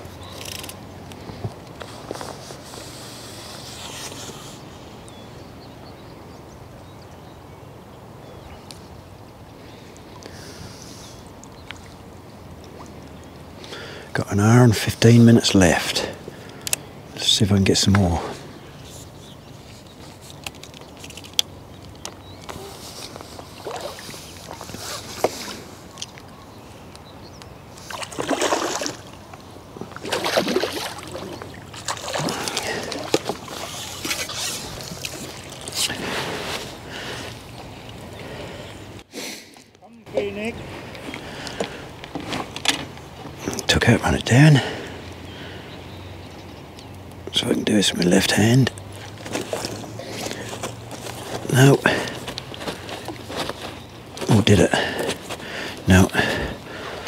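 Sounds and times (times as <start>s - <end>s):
soft rustle: 0.4s - 4.7s, 18.8s - 26.2s, 48.9s - 54.3s
fish thrashing and splashing water: 22.8s - 25.6s, 27.8s - 38.0s, 48.9s - 55.2s.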